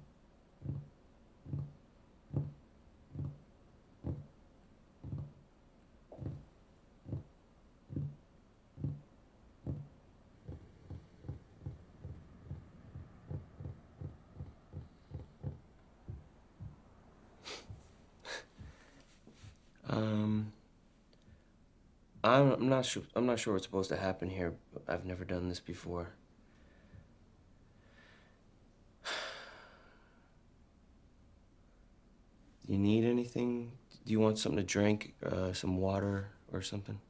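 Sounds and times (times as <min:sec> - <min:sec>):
fingers tapping on wooden table: 0:00.6 - 0:04.3, 0:05.0 - 0:05.4, 0:06.1 - 0:06.5, 0:07.1 - 0:07.3, 0:07.9 - 0:08.2, 0:08.8 - 0:16.8.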